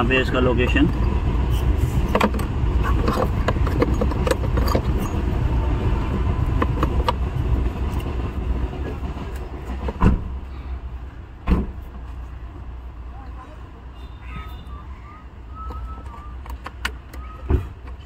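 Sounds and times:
steady low rumble: 0.0s - 13.2s
thump: 9.9s - 10.3s, 11.4s - 11.8s.

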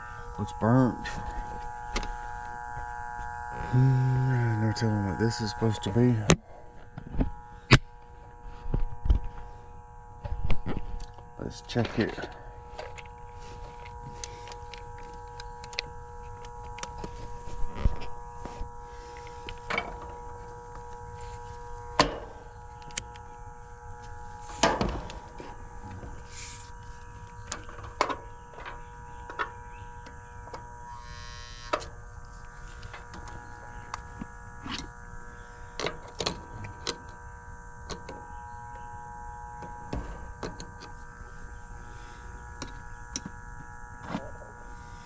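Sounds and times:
steady machine hum: 0.0s - 45.0s.

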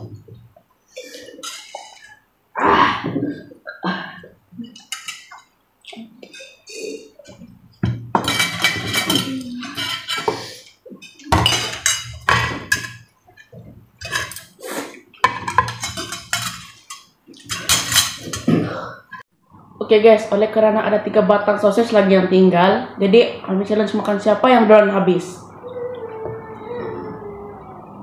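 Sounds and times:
cutlery clinking on plates: 1.0s - 2.2s, 4.8s - 5.5s, 6.2s - 14.6s, 15.2s - 18.6s.

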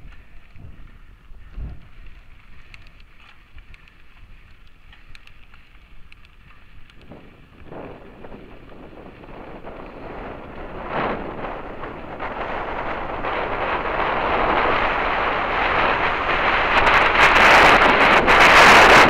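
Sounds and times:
small ticks and rattles: 0.0s - 15.0s
bike tyres rumbling on gravel: 0.0s - 19.0s
wind on microphone: 0.0s - 19.0s.

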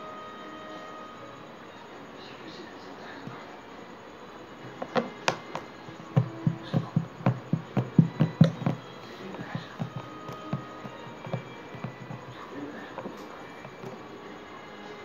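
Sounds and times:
hands patting racket on slime: 4.8s - 8.8s.

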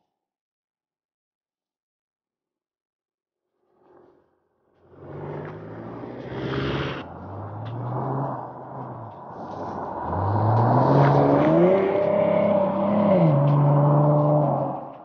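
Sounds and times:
car accelerating past: 4.8s - 15.0s.

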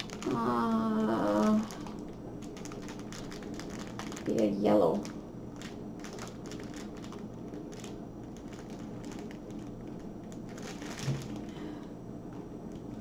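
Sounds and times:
plastic bag crinkling: 0.0s - 11.7s.

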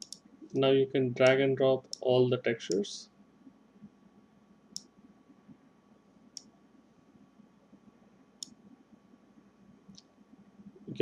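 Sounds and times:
computer mouse clicking: 0.0s - 0.6s, 8.4s - 8.6s.

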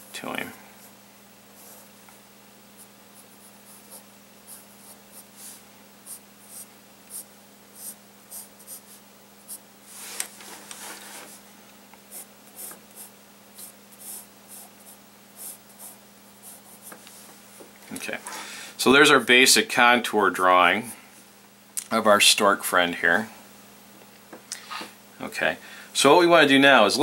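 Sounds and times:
faint low hum: 0.0s - 27.0s
pencil scratching on paper: 2.8s - 9.6s, 12.1s - 17.0s.

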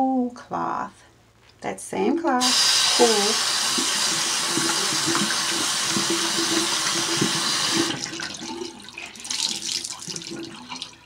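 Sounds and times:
tap water running into sink: 2.4s - 11.0s.

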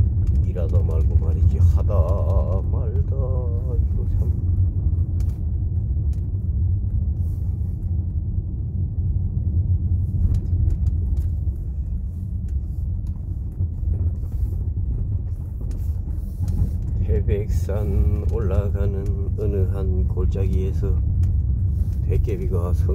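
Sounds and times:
car engine and tyres rumbling: 0.0s - 22.9s
faint clicks and rattles: 0.0s - 22.9s.

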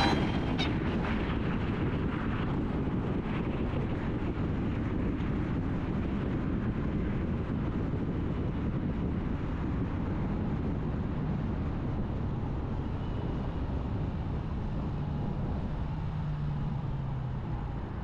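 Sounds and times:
road rumble: 0.0s - 5.7s
wind rush: 0.0s - 12.3s
wind hitting microphone: 0.0s - 16.3s.

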